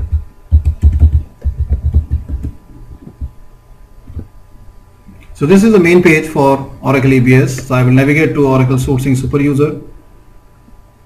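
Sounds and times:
keyboard typing: 0.0 - 3.3.

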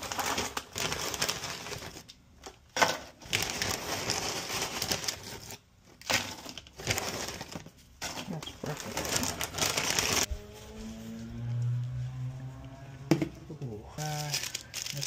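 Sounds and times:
plastic bag crinkling: 0.0 - 2.1, 3.2 - 10.3, 14.0 - 15.0
chips rustling into a bowl: 14.0 - 15.0.

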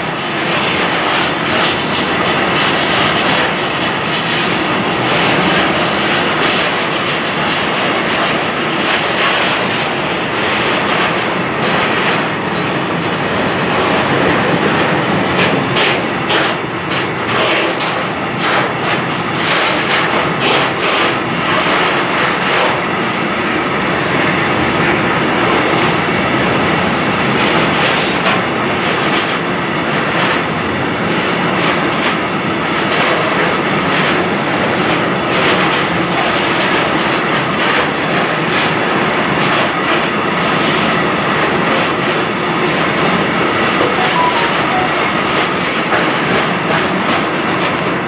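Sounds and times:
freight train rolling past: 0.0 - 48.0
wheels clacking on rail joints: 0.0 - 48.0.

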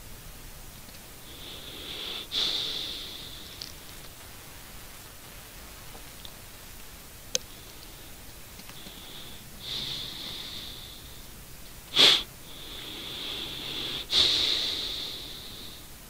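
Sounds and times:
person breathing: 1.2 - 3.9, 7.5 - 11.3, 11.9 - 16.0
sharp sniff: 1.3 - 3.6, 11.9 - 15.8.

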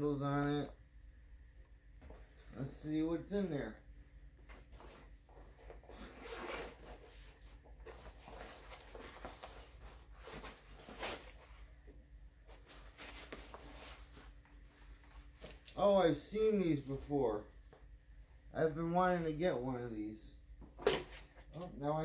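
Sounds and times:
fabric rustling: 4.4 - 17.1.

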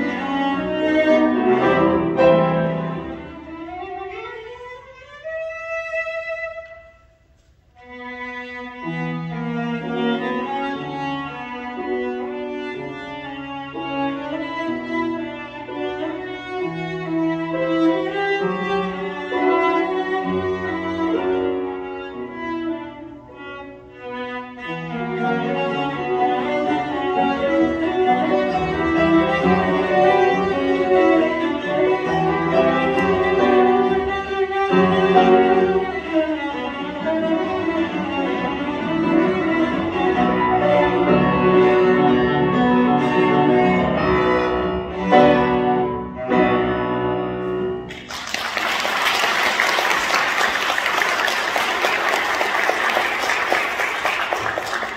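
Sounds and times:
cello and piano playing: 0.0 - 48.1
audience applauding: 47.9 - 54.9.

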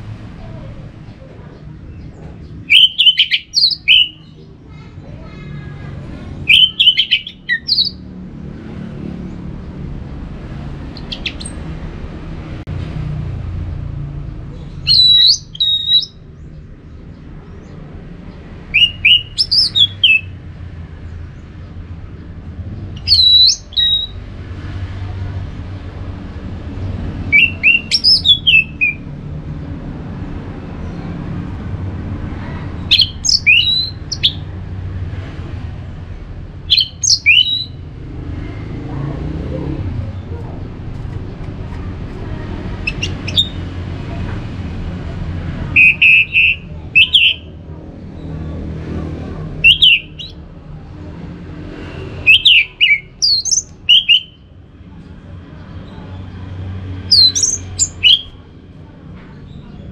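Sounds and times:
thrush singing whistled phrases: 2.7 - 4.3, 6.4 - 8.0, 11.0 - 11.6, 14.9 - 16.2, 18.7 - 20.3, 23.0 - 24.2, 27.3 - 29.1, 32.9 - 34.4, 36.7 - 37.8, 42.8 - 43.6, 45.8 - 47.5, 49.6 - 50.4, 52.1 - 54.5, 57.1 - 58.4.

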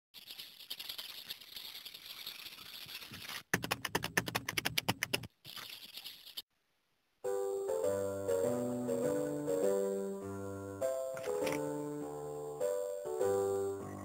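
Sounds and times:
scratchy hissing rustle: 0.2 - 3.5, 5.4 - 6.4
fast rattle of clicks: 0.2 - 6.4.

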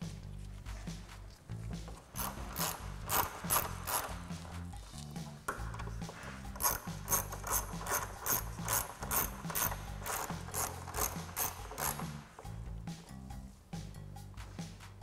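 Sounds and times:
hand ratchet clicking: 1.9 - 12.6.

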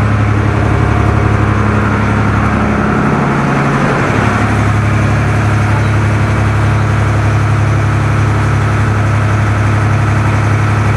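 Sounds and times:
boat engine humming: 0.0 - 10.9.

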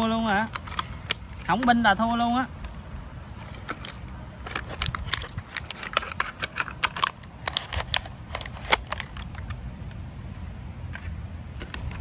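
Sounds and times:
plastic crackling in hands: 0.0 - 9.6
plastic being cut with knife: 3.6 - 9.5.

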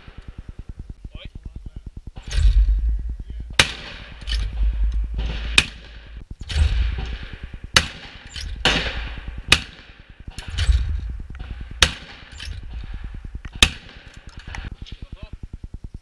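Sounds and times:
shotgun shots: 2.2 - 14.7
wind buffeting microphone: 8.4 - 14.8.

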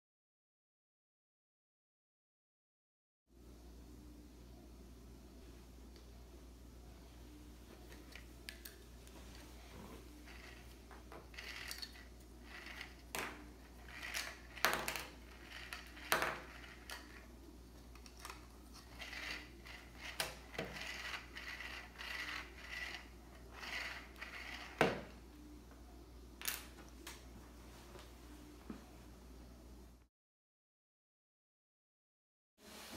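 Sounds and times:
toy spools whirring: 7.9 - 25.2.

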